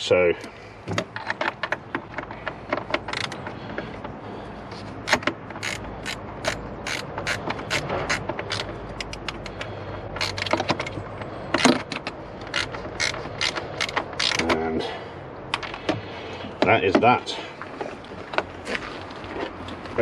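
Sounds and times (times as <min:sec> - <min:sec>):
hand ratchet clicking: 0:02.4 - 0:03.5, 0:05.0 - 0:14.6.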